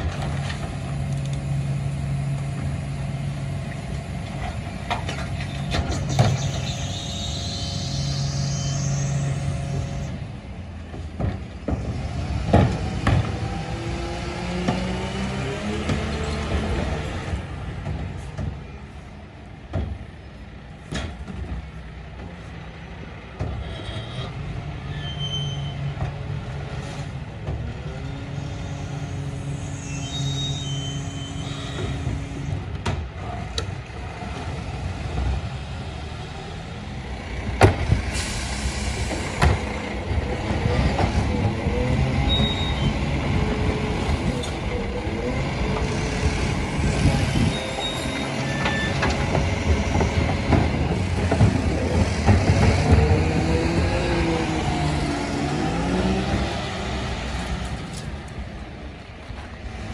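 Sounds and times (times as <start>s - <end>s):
garbage truck running: 0.0s - 23.7s, 24.4s - 59.9s
clunks and bangs: 3.7s - 6.9s, 10.8s - 18.7s, 19.6s - 20.2s, 20.8s - 22.4s, 31.8s - 33.7s, 37.4s - 38.3s, 39.0s - 44.6s, 45.4s - 55.4s.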